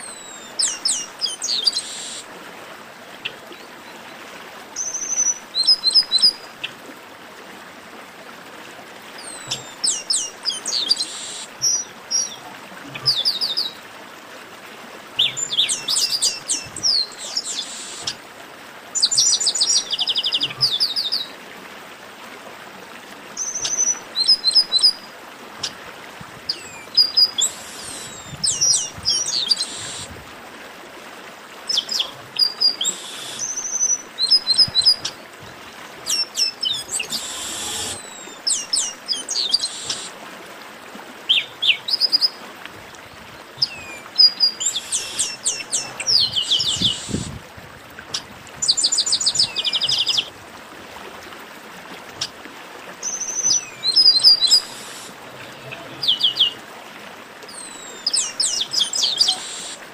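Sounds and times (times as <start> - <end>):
steady hiss: 1.7 - 2.3, 10.7 - 11.6, 17.4 - 18.2, 29.5 - 30.2, 32.8 - 33.6, 37.0 - 38.1, 54.4 - 55.4.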